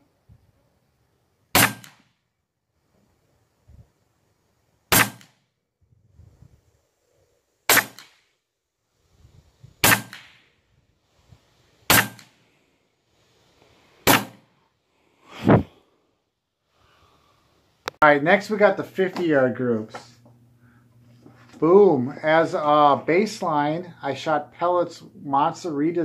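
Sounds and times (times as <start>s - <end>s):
air rifle shots: 1.6s - 2.1s, 4.9s - 5.4s, 7.7s - 8.2s, 9.8s - 10.5s, 11.9s - 12.4s, 14.0s - 14.5s.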